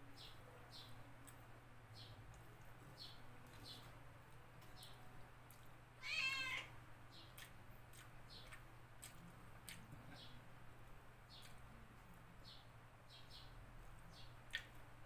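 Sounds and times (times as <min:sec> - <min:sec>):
cat meowing: 0:06.0 - 0:06.8
eating smacking sounds: 0:07.3 - 0:10.4, 0:14.4 - 0:14.9.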